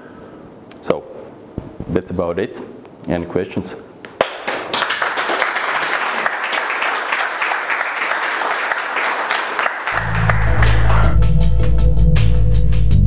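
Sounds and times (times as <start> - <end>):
audience applauding: 4.2 - 11.3
music with heavy deep bass: 10.0 - 13.0.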